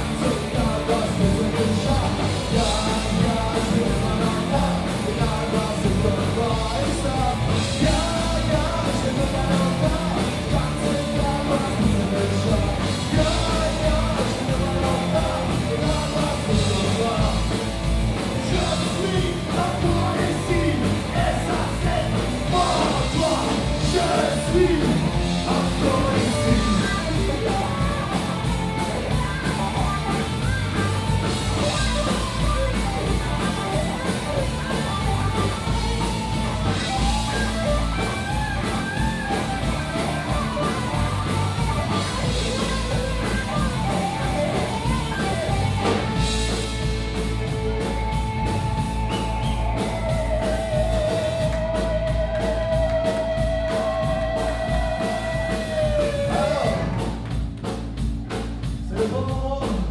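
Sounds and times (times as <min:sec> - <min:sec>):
person singing: 0:00.0 - 0:17.6, 0:18.3 - 0:30.0, 0:50.4 - 0:57.2
rock band playing: 0:00.0 - 0:59.9.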